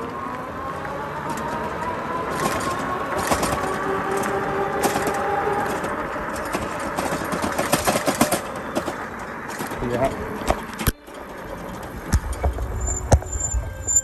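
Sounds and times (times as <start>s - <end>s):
electric bike motor whining: 0.0s - 7.4s, 8.2s - 14.0s
knocks and rattles over rough road: 0.0s - 14.0s.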